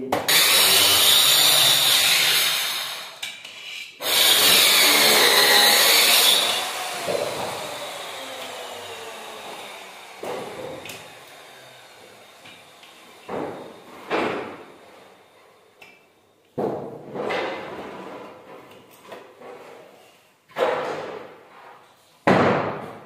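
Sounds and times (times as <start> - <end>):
power tool motor running: 0.3 - 3.2, 4.0 - 13.1.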